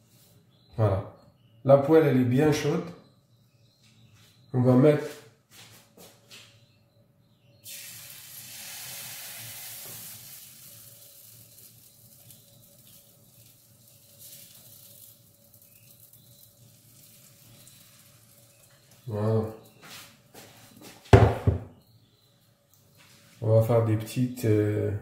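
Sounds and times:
batter sizzling in frying pan: 7.6s - 19.1s.

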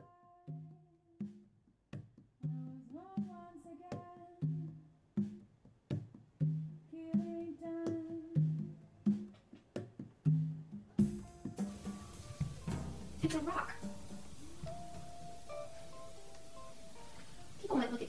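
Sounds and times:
plucked string notes: 11.2s - 18.0s.

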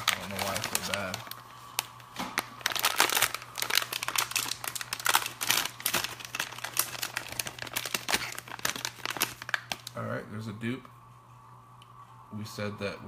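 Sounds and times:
packaging crinkling: 0.0s - 10.0s.

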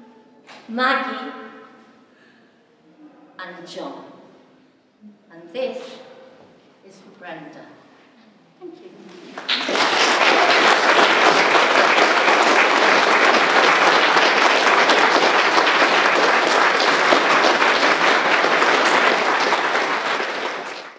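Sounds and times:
small group clapping: 9.0s - 20.9s.

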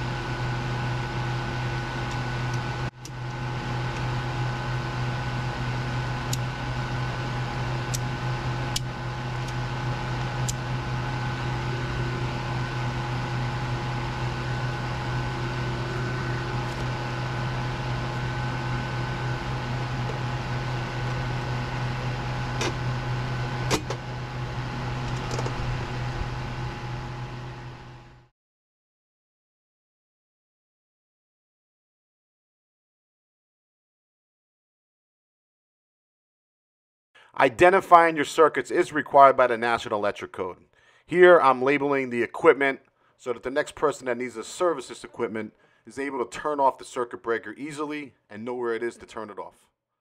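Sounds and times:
motor humming: 0.0s - 28.3s.

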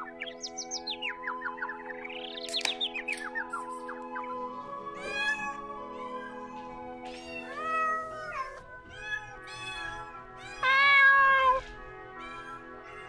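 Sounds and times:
background music: 0.0s - 13.0s
cats meowing: 4.9s - 13.0s.

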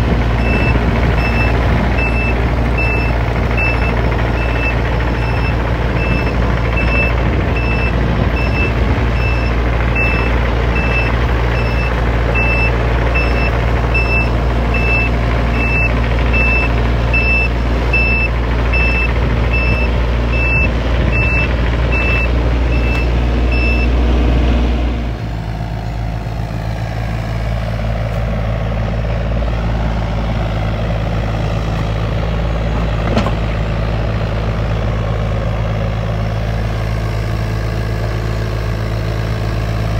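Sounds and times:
diesel engine running: 0.0s - 39.9s
travel alarm beeping: 0.4s - 23.9s.

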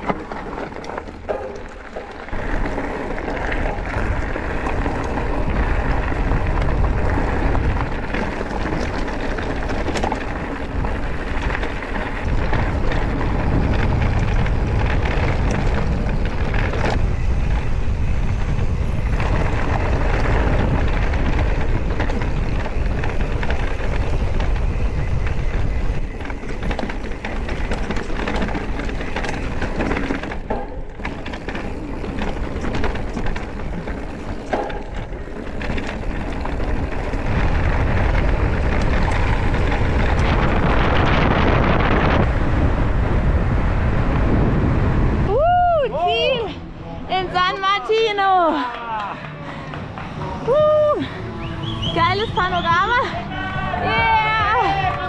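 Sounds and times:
tyres crunching on gravel: 0.0s - 42.6s
bike rattling: 0.0s - 55.0s
wind rushing over microphone: 2.3s - 47.4s.

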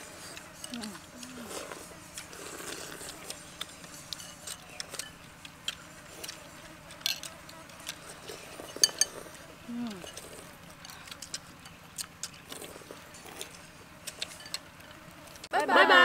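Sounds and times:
chopsticks clicking against bowls: 2.1s - 8.0s, 10.0s - 15.5s.

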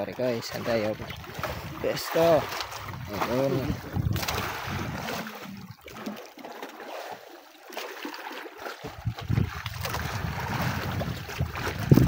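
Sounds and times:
water sloshing against boat: 0.0s - 12.0s
wind rumble on microphone: 1.0s - 5.8s, 8.8s - 12.0s.

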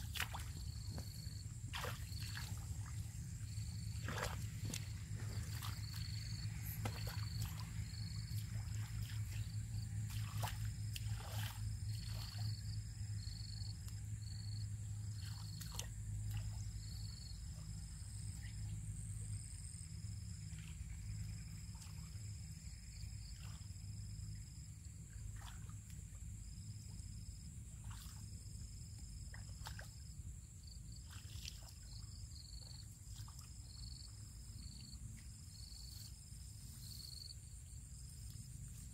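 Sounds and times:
squelching and splashing in mud: 0.0s - 12.6s, 15.2s - 16.6s
insects chirping: 0.0s - 38.9s
steady low hum: 0.0s - 38.9s.

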